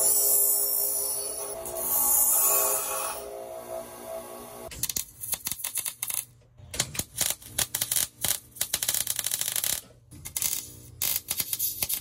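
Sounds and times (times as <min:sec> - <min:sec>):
welder arc crackling: 0:06.9 - 0:12.0.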